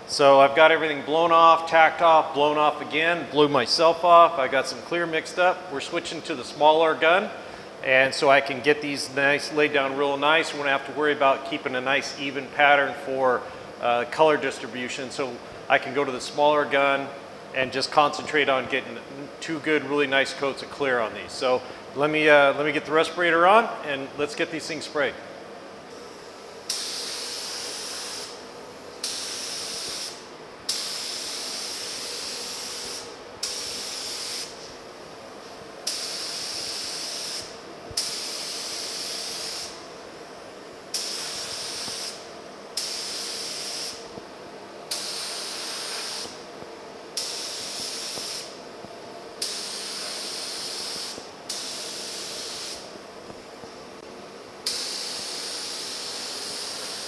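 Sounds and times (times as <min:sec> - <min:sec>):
spray gun hissing: 0:25.9 - 0:28.4, 0:29.0 - 0:34.7, 0:35.8 - 0:39.9, 0:40.9 - 0:44.1, 0:44.9 - 0:46.4, 0:47.1 - 0:48.6, 0:49.4 - 0:52.9, 0:54.6 - 0:57.0.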